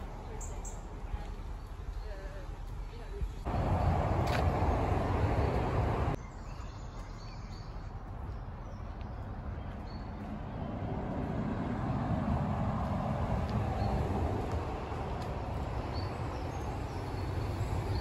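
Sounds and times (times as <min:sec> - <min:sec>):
steady low rumble: 0:00.0 - 0:06.2, 0:08.1 - 0:18.0
low rush: 0:03.5 - 0:06.2.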